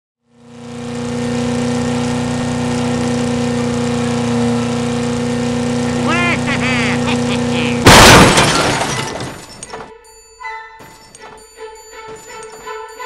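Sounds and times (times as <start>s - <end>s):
car engine running steadily: 0.2s - 9.2s.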